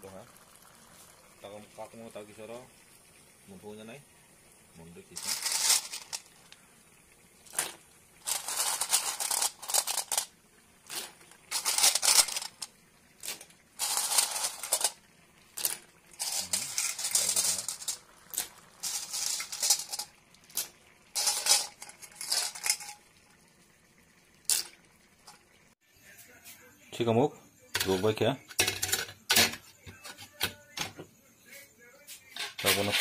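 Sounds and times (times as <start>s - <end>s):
snail shells rattling in a pot: 5.1s - 6.6s, 7.3s - 23.2s, 24.4s - 25.4s, 27.8s - 29.6s.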